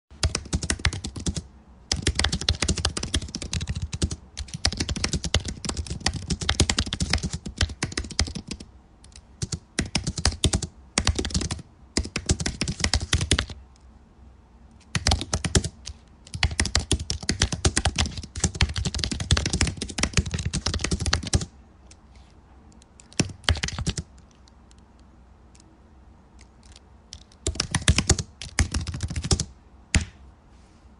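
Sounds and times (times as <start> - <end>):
typing on computer keyboard: 0.2 - 13.6, 14.9 - 21.5, 22.8 - 24.8, 26.4 - 30.1.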